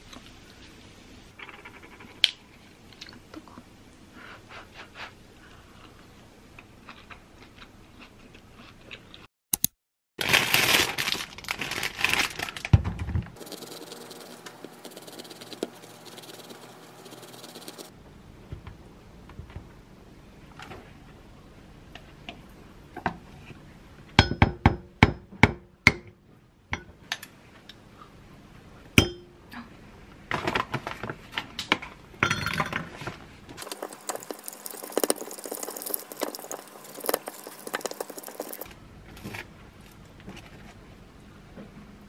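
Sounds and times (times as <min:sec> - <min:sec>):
spoon scraping and stirring in glass: 0:13.4 - 0:17.9, 0:33.6 - 0:38.7.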